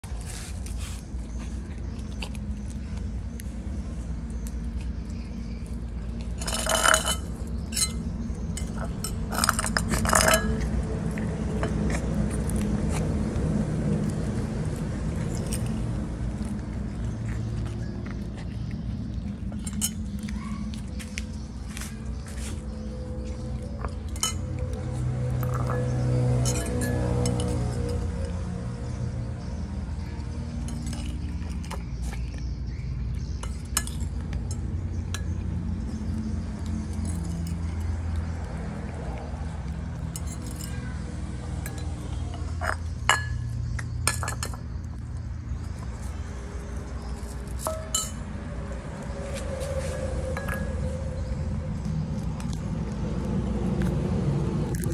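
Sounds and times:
spoon clinking on ceramic plate: 6.4 - 8.0, 47.6 - 48.2
steady low rumble: 41.1 - 54.9.

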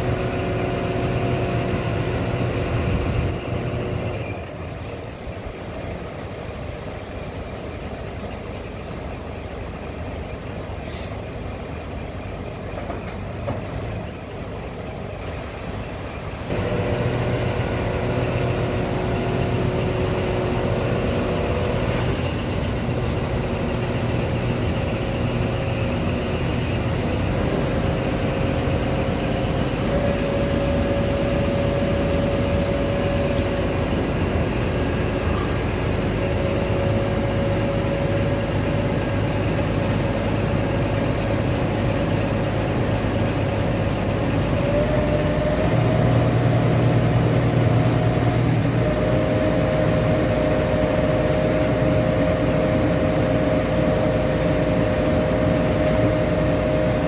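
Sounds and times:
truck diesel engine running: 0.0 - 57.0
hydraulic whine: 16.5 - 57.0.

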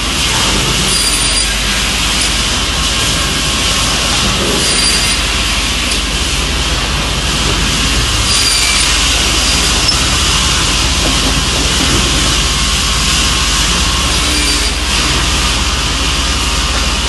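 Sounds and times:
low machine hum: 0.0 - 17.0
circular saw cutting a board: 0.3 - 2.9, 4.0 - 6.4, 8.0 - 10.7, 13.7 - 15.5.

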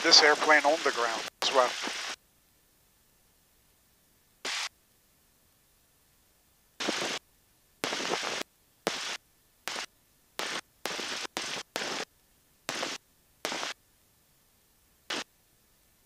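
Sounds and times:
bursts of engine and cockpit hiss: 0.0 - 2.2, 4.4 - 4.7, 6.8 - 7.2, 7.8 - 12.1, 12.7 - 13.8.

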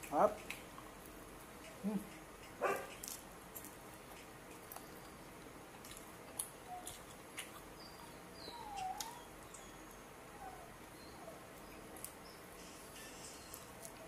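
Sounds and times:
clicks of eating by hand: 5.8 - 7.7
animal squeaks and chirps: 7.8 - 11.4.

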